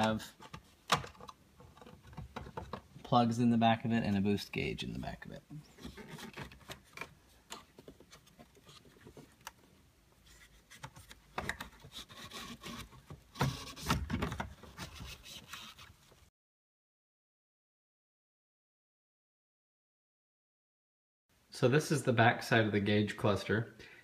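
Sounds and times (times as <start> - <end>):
plastic clicks and knocks: 0.0 - 2.9.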